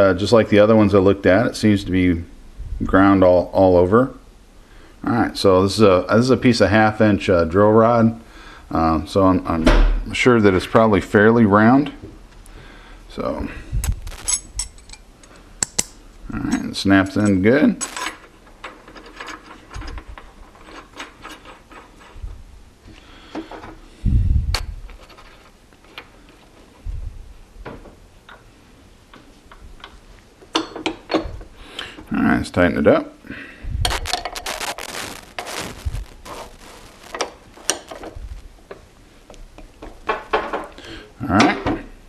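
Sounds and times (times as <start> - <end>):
light metallic clicks and rubs: 13.8 - 22.2.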